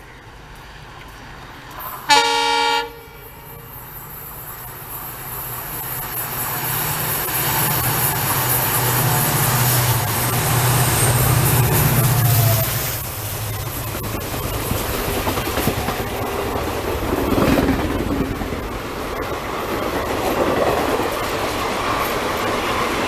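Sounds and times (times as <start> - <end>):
diesel locomotive engine: 0.0 - 23.0
train rolling past: 0.0 - 23.0
train horn blast: 1.9 - 3.9.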